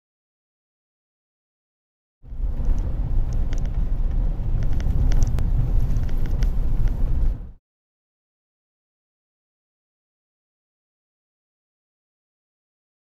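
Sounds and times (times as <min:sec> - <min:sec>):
road and engine rumble in car: 0:02.2 - 0:07.6.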